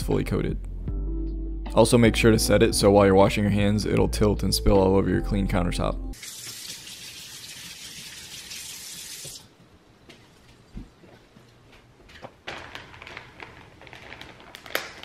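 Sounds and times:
faucet running: 6.2s - 9.5s
plastic bag crinkling: 12.3s - 15.0s.

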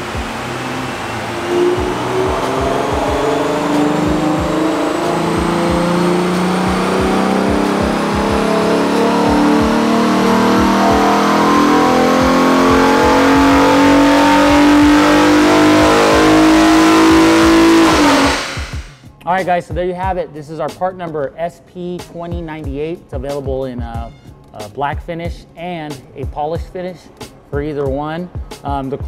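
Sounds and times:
car engine revving under load: 0.0s - 19.0s
thin whine: 0.0s - 19.0s.

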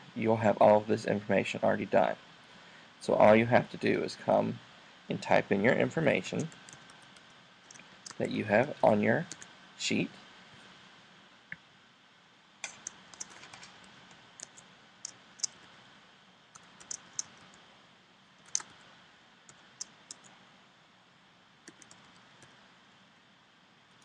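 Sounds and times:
keyboard typing: 6.3s - 8.2s, 9.2s - 9.5s, 12.6s - 15.7s, 16.5s - 17.6s, 18.4s - 18.8s, 19.5s - 20.3s, 21.6s - 22.5s.

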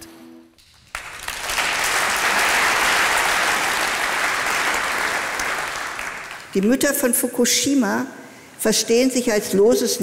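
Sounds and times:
audience applauding: 0.6s - 6.8s.

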